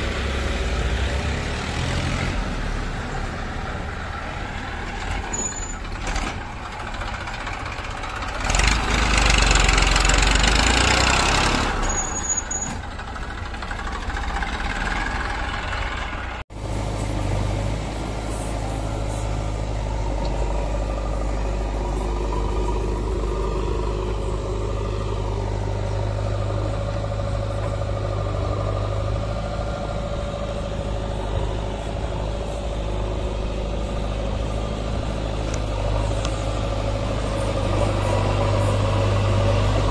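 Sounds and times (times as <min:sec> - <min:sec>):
diesel engines running: 0:00.0 - 0:39.9.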